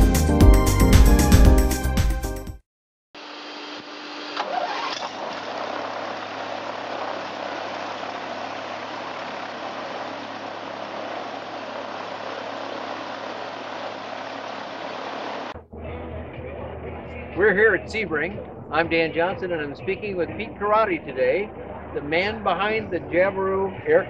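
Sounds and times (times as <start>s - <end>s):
aircraft engine starting and idling: 3.8s - 15.6s.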